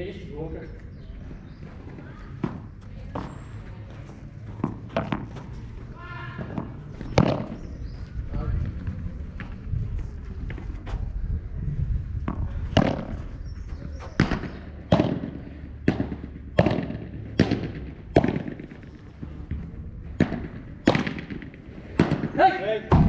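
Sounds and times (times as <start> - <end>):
padel ball struck by rackets: 4.6 - 5.5, 6.4 - 7.7, 12.2 - 13.2, 14.2 - 18.8, 20.2 - 23.0.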